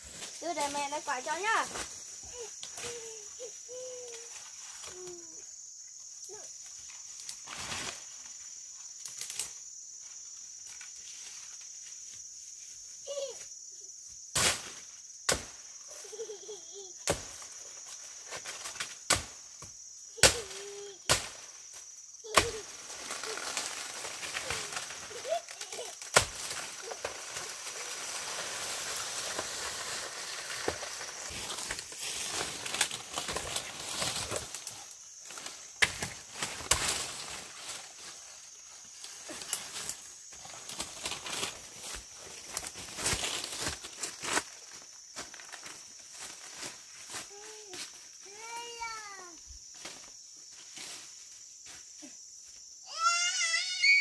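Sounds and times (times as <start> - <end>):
high insect drone: 0.0 - 54.0
machete chopping plant trunk: 15.3 - 15.6, 17.0 - 17.4, 18.8 - 19.4, 20.2 - 21.4, 22.3 - 22.6, 26.0 - 26.6, 35.8 - 37.0
foliage rustling: 20.4 - 47.8.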